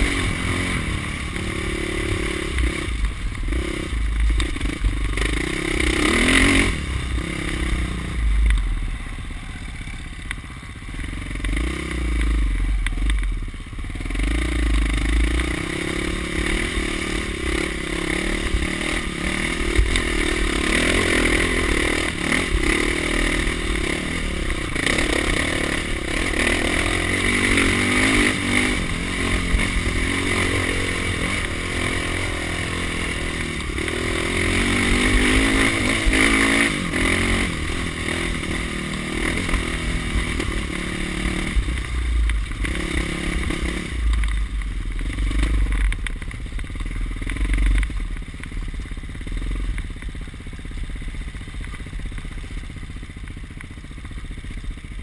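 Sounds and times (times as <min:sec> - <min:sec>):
dirt bike engine revving: 0:00.0 - 0:08.5, 0:10.9 - 0:46.4.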